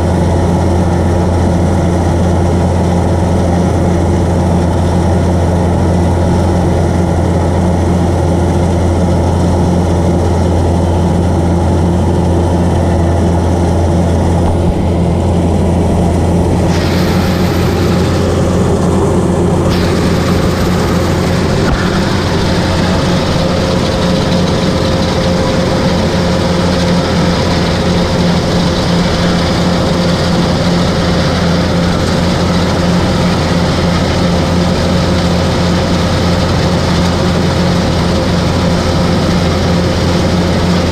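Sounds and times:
combine harvester running: 0:00.0 - 0:40.9.

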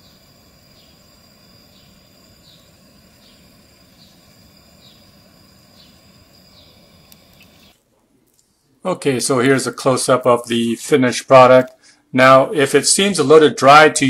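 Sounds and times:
thin steady high tone: 0:00.0 - 0:07.8.

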